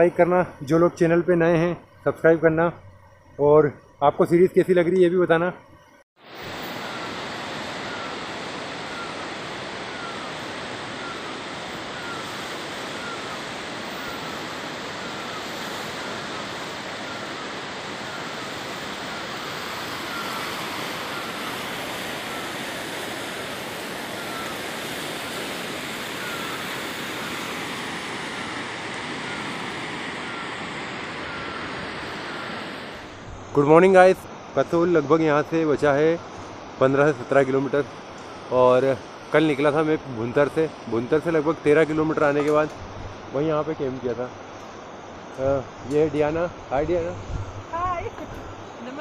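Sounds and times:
faint falling chirp: 23.4 - 32.8.

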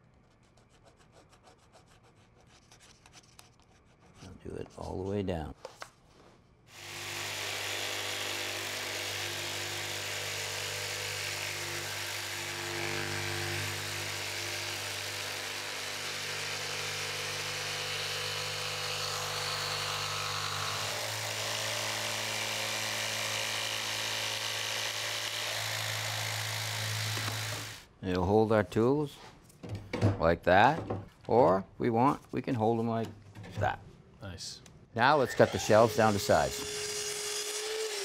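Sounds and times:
jigsaw cutting plywood: 6.7 - 27.8, 35.4 - 38.0.

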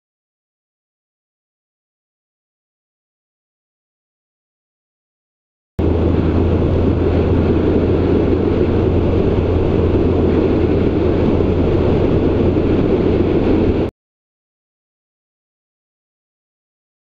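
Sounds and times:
outboard motor roaring: 5.8 - 13.9
wind and rushing water: 5.8 - 13.9.

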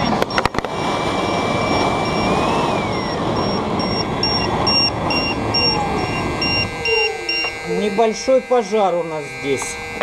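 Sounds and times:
fire roaring in combustion chamber: 0.0 - 6.7
faint electronic beeping: 1.2 - 10.0.

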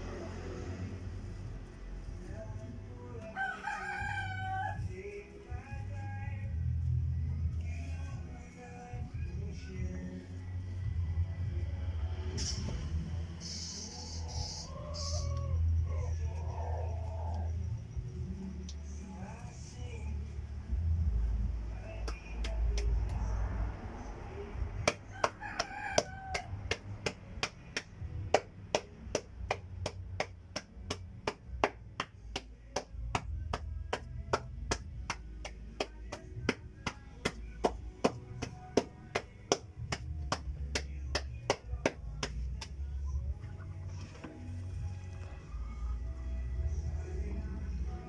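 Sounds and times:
rooster crowing: 3.2 - 5.2, 13.8 - 17.8, 25.1 - 27.2.

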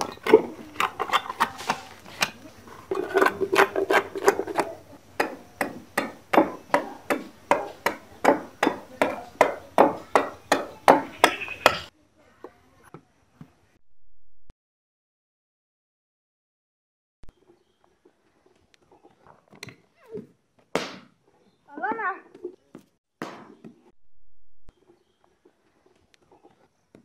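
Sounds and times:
machete chopping wood: 3.2 - 11.8, 20.7 - 21.2, 23.2 - 23.8.

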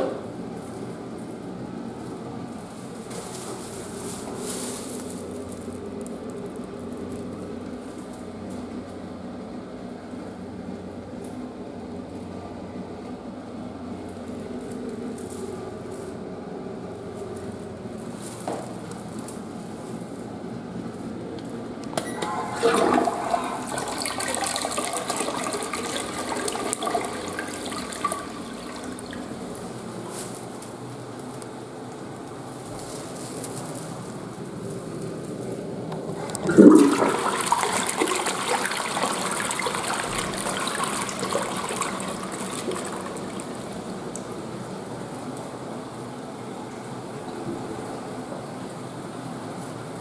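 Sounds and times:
ventilation fan hum: 0.0 - 50.0
handling rustle: 2.0 - 8.2
toilet flush click: 21.9 - 29.2, 36.2 - 43.6
toilet water rushing: 22.0 - 29.6, 36.2 - 44.3.

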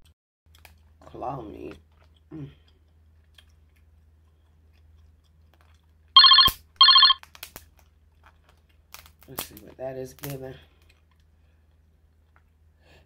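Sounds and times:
telephone ringing: 6.2 - 7.2.

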